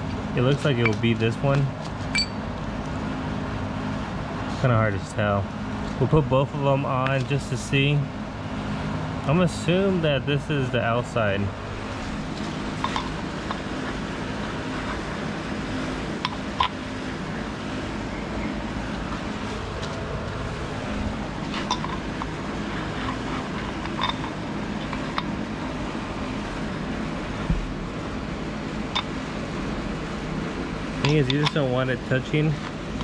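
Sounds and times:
background hum: 0.0 - 33.0
metal parts clicking: 23.7 - 25.3.

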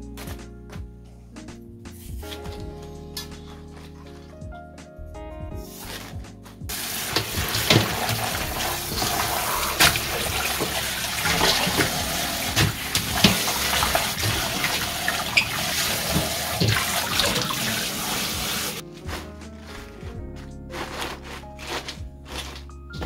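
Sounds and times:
tap water running into sink: 6.7 - 18.8
knocks and clatter in basin: 6.8 - 17.8.

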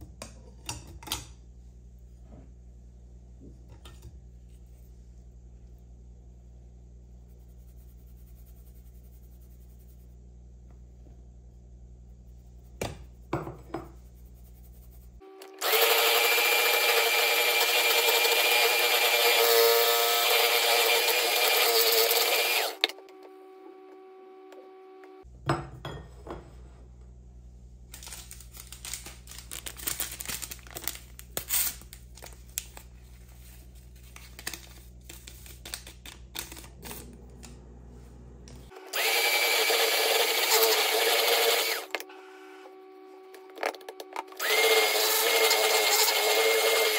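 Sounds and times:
electric hand mixer whine: 15.3 - 25.2, 38.7 - 43.4, 44.4 - 46.9.

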